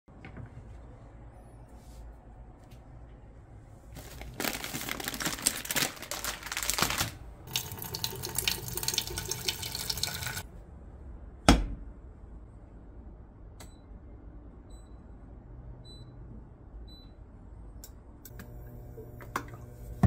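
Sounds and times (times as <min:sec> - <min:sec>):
water running from tap: 0:07.5 - 0:10.4.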